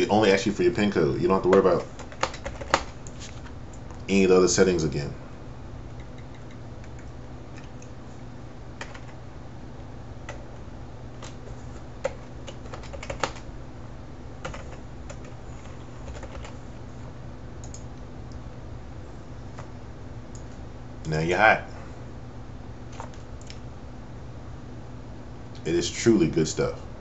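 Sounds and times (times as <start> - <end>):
steady low hum: 0.0 - 27.0
computer keyboard keys tapping: 1.5 - 3.1, 5.9 - 7.9, 8.8 - 9.2, 12.0 - 13.4, 14.4 - 16.6, 17.6 - 17.9.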